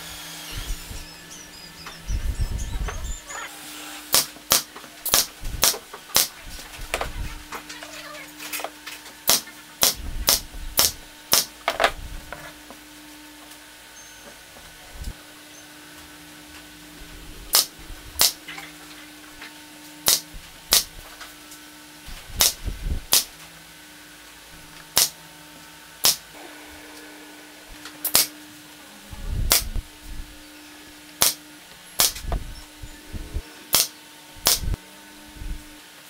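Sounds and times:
nail gun firing into wood: 4.1 - 6.3, 9.3 - 11.5, 20.0 - 20.9, 33.7 - 34.7.

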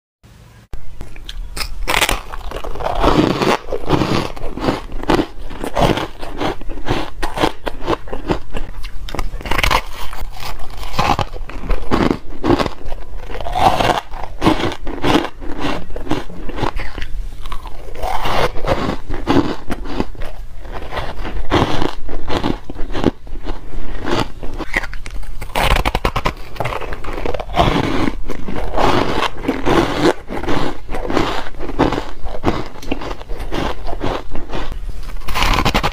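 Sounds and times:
chewing ice crunches: 1.0 - 35.9.

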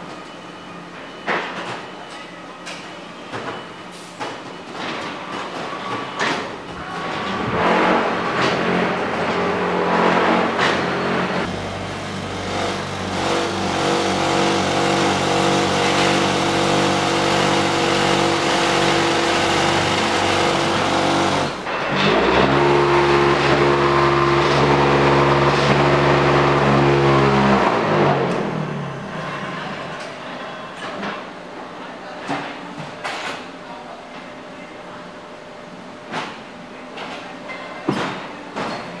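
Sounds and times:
electric motors humming: 6.6 - 30.0.

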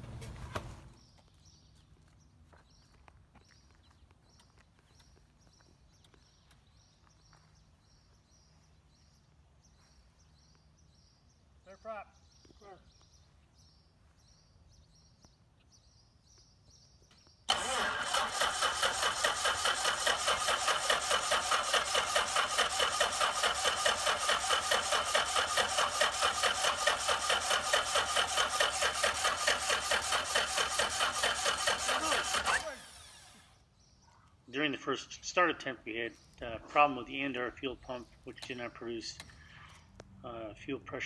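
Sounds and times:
starter cranking aircraft engine: 17.5 - 33.6.

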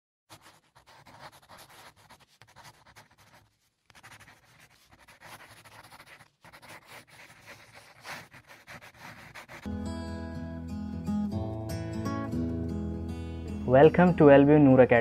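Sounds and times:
marker pen scratching on board: 0.3 - 9.7.

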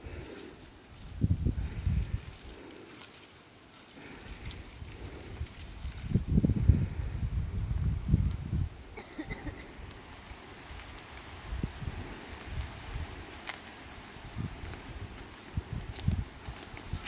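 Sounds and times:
insects chirping: 0.0 - 17.0.

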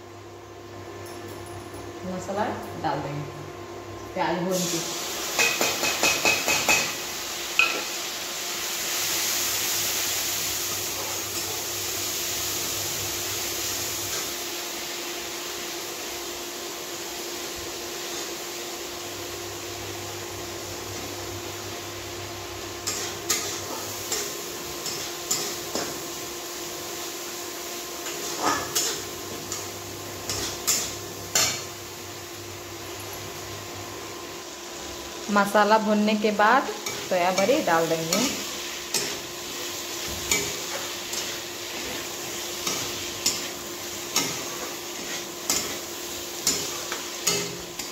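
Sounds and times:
frying sizzle: 4.4 - 47.9
metal spatula scraping a pan: 40.0 - 47.9.

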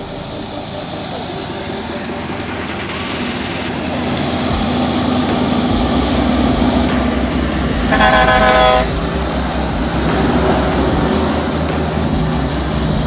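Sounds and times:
truck diesel engine passing: 0.0 - 13.0
truck horn blast: 4.2 - 12.1.

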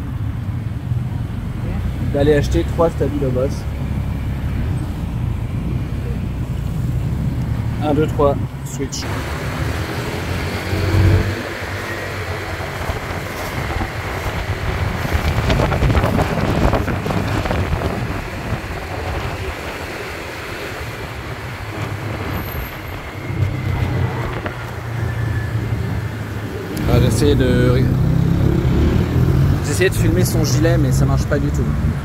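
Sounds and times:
scooter engine humming: 2.9 - 29.5
wind buffeting the microphone: 12.1 - 25.0.

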